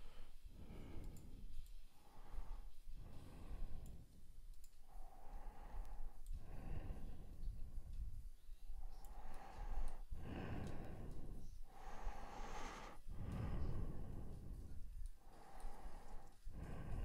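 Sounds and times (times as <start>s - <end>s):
person breathing close to microphone: 0.0s - 17.0s
faint mouse clicks: 0.6s - 1.9s, 2.6s - 11.5s.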